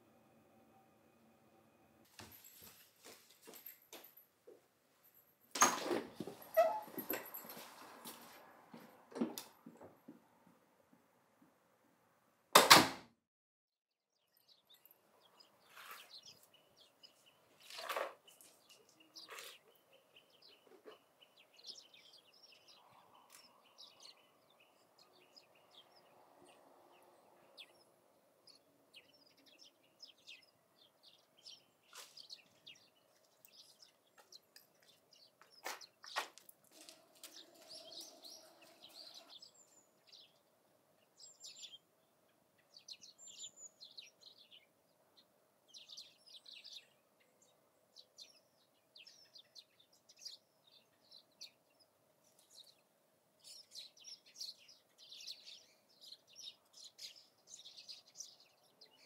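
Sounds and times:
plant pots knocking and clattering: 0:05.5 - 0:10.2
door banging shut: 0:12.6 - 0:13.1
small birds chirping: 0:14.1 - 0:59.0.

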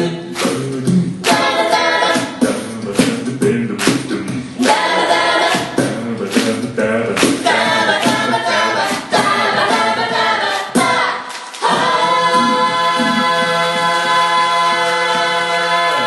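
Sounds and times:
group singing in harmony: 0:00.0 - 0:16.0
vocal percussion beat: 0:00.0 - 0:16.0.

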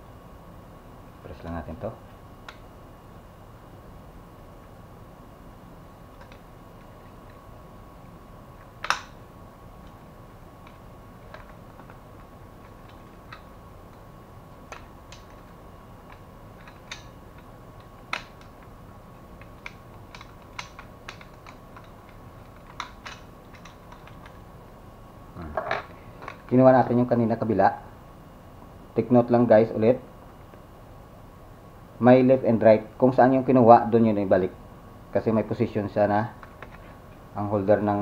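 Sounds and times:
plastic and metal parts clicking: 0:19.4 - 0:24.4.

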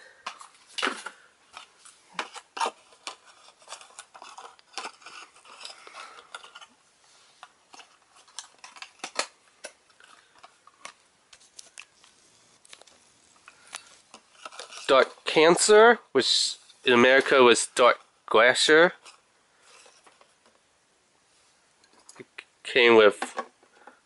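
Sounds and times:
scraping rustle of packaging: 0:01.5 - 0:09.3, 0:09.9 - 0:15.3.

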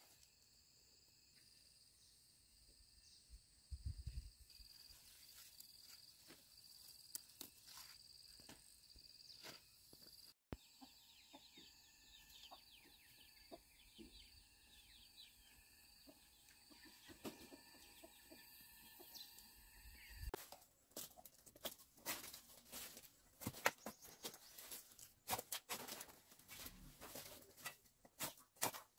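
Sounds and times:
chickens clucking: 0:10.6 - 0:15.0, 0:15.8 - 0:19.4.

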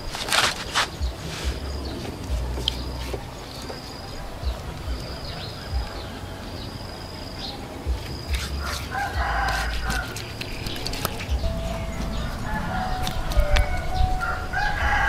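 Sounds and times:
high bird chirp: 0:01.0 - 0:15.0
hand smoothing wet clay: 0:08.1 - 0:11.3
rooster crowing: 0:08.6 - 0:10.2, 0:11.5 - 0:15.0.

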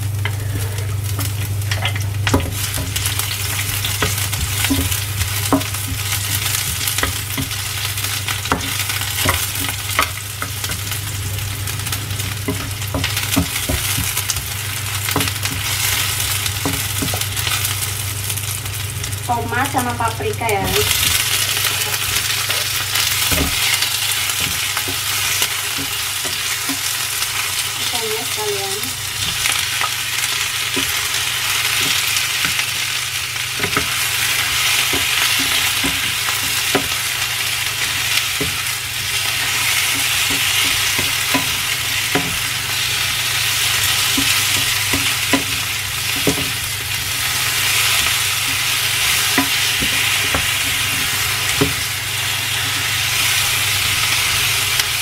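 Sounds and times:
vegetables and prawns sizzling: 0:00.0 - 0:55.0
spatula scraping and tapping pan: 0:21.0 - 0:27.0, 0:33.6 - 0:37.0.

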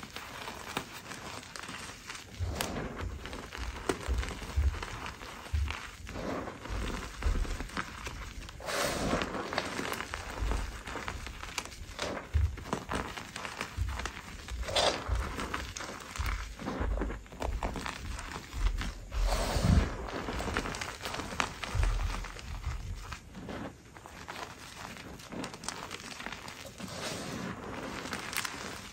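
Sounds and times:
chalk crunching in hands: 0:00.0 - 0:28.9
soft low thumps: 0:02.4 - 0:23.6.

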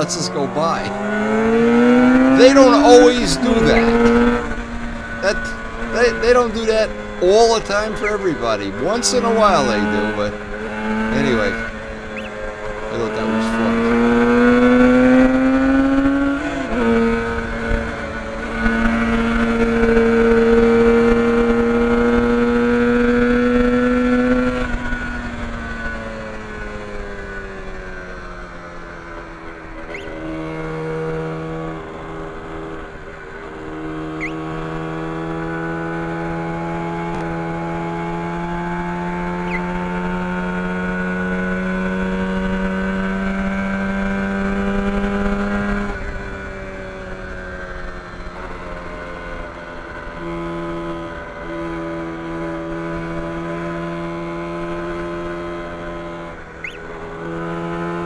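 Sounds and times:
two-stroke motorcycle engine: 0:00.0 - 0:58.0.

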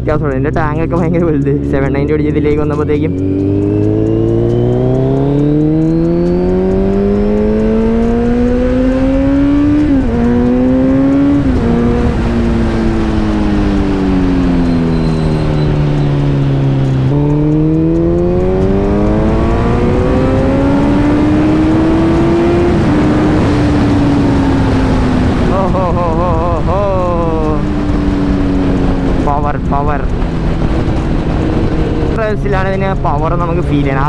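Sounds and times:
motorcycle engine revving: 0:00.0 - 0:34.0
wind noise: 0:00.0 - 0:34.0.

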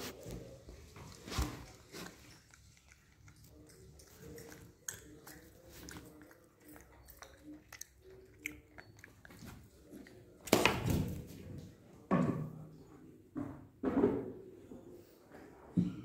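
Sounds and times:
monkey chewing and crunching: 0:00.0 - 0:10.5.

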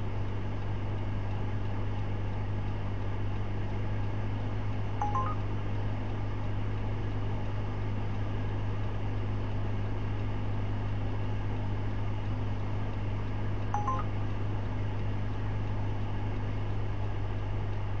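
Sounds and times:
low cabin hum: 0:04.9 - 0:05.5
two-tone electronic beep: 0:05.0 - 0:05.4, 0:13.8 - 0:14.1.

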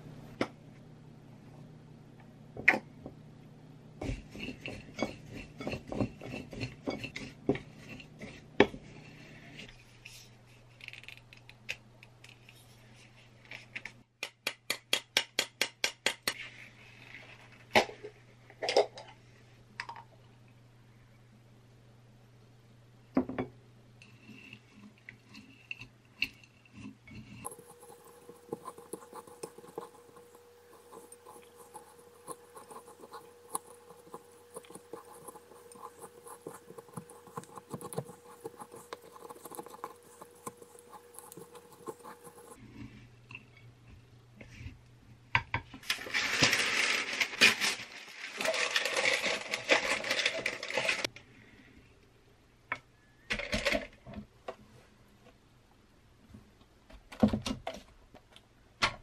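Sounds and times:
spoons stirring in a bowl: 0:04.0 - 0:09.7, 0:24.0 - 0:42.6.

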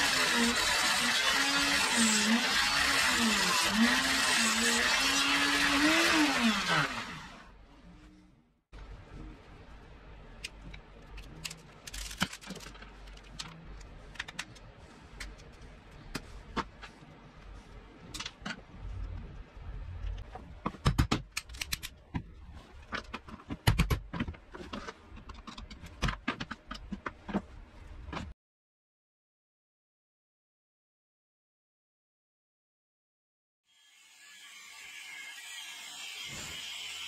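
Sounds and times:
metal parts and screwdriver clicking: 0:20.0 - 0:22.0, 0:22.8 - 0:27.2.

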